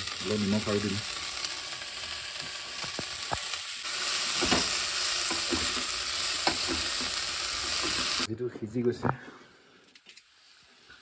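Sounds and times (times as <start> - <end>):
vegetables sizzling in a pan: 0.0 - 8.3, 10.3 - 11.0
spatula scraping and knocking pan: 4.3 - 8.3.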